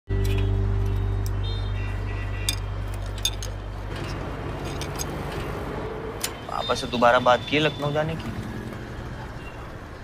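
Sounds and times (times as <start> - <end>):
tools clinking on bicycle: 2.5 - 5.1.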